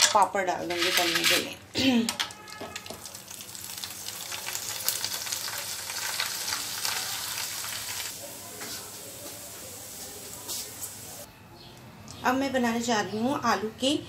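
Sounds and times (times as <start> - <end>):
papad sizzling in oil with pops: 2.8 - 9.4.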